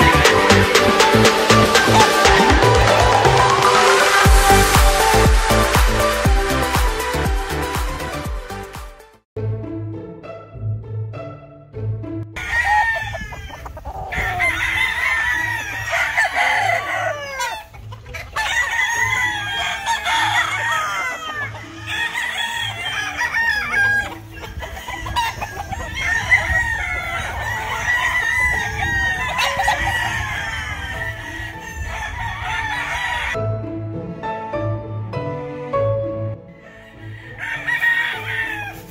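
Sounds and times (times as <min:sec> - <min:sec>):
roosters crowing: 0:12.4 - 0:33.4, 0:36.5 - 0:38.9.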